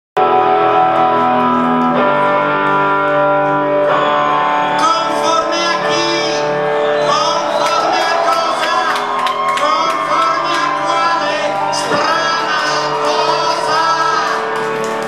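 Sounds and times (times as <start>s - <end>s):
guitars playing sustained chords: 0.2s - 15.0s
man singing: 4.7s - 14.7s.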